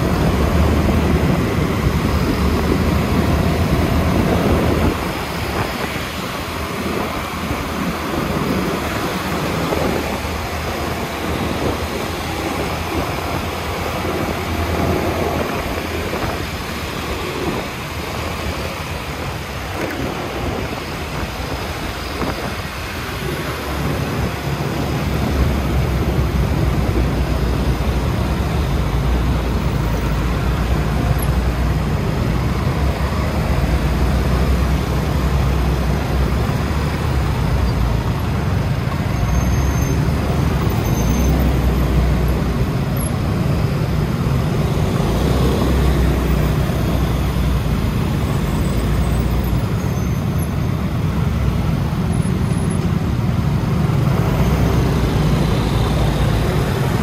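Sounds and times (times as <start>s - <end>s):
wind on microphone: 0.0s - 39.1s.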